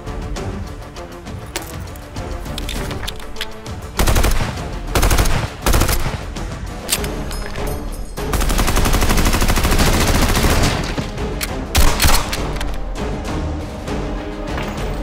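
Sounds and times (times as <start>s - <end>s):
background music: 0.0s - 15.0s
rapid gunfire burst: 3.9s - 6.4s, 8.3s - 10.9s.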